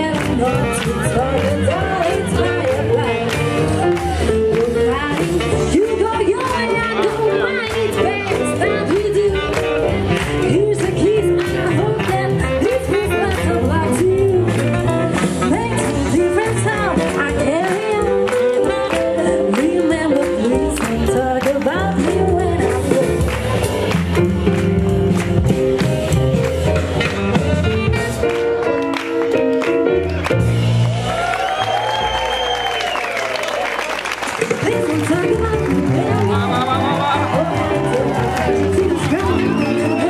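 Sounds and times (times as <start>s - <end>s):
woman singing: 0.0s - 23.4s, 34.5s - 36.3s, 37.3s - 40.0s
swing jazz band playing: 0.0s - 32.3s, 33.3s - 40.0s
drums: 0.0s - 40.0s
saxophone: 0.1s - 21.1s.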